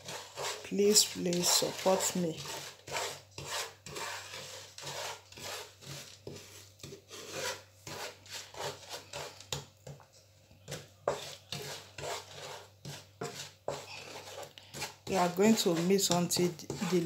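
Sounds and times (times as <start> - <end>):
wooden spoon scraping a frying pan: 0.0 - 17.0.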